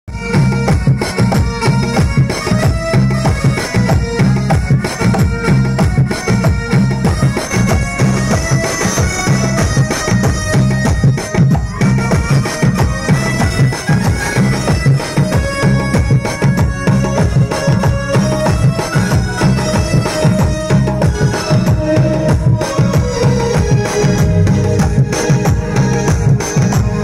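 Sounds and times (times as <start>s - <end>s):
drum beating fast rhythm: 0.1s - 27.0s
reedy electronic keyboard melody: 0.1s - 27.0s.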